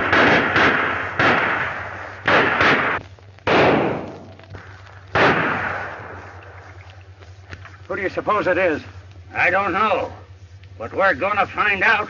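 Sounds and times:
gunshots with echoing decay: 0:00.0 - 0:06.8.

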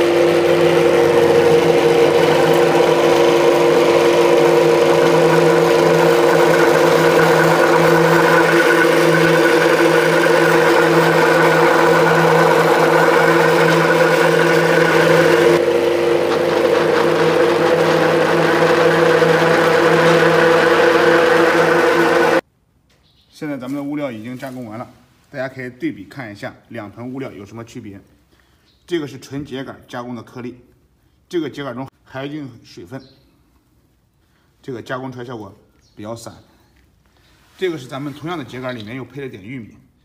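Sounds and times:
pellet mill humming: 0:00.0 - 0:22.4.

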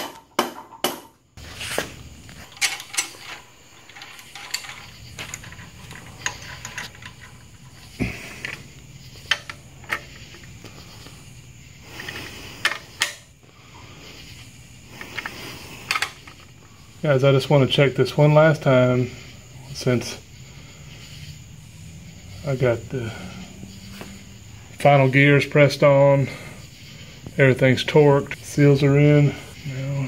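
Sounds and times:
metal tools clinking on metal: 0:02.4 - 0:07.8.

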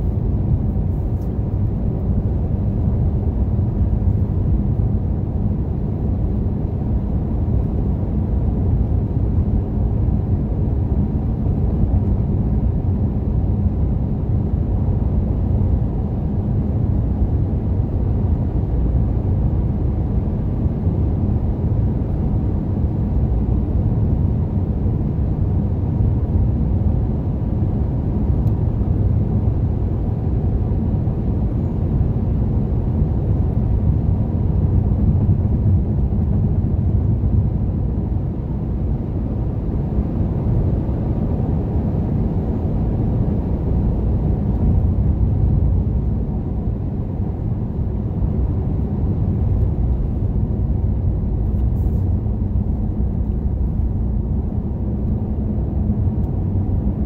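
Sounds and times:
car interior road rumble: 0:27.6 - 0:57.0.

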